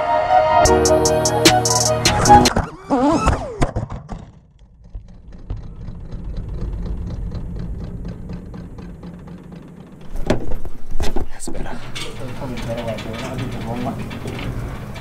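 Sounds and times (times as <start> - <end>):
music: 0.0 - 2.6
low mechanical hum with ticking: 4.5 - 15.0.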